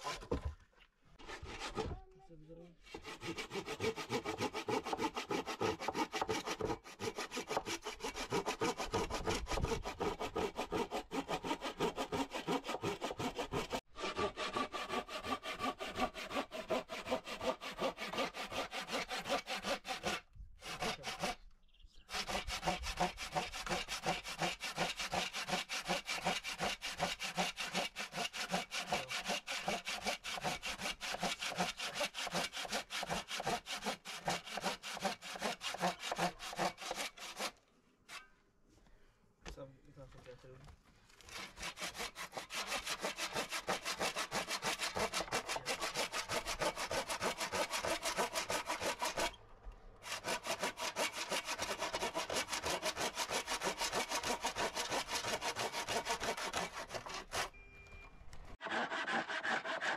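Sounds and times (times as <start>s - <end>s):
hand saw cutting wood: 0.0s - 0.6s, 1.2s - 2.0s, 2.8s - 21.5s, 22.1s - 38.3s, 41.2s - 49.4s, 50.0s - 57.6s, 58.6s - 59.9s.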